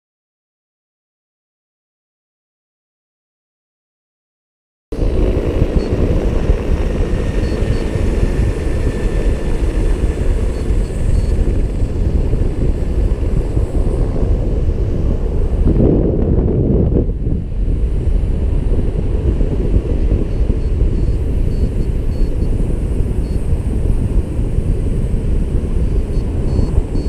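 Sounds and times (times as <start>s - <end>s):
wind buffeting microphone: 5.0s - 27.0s.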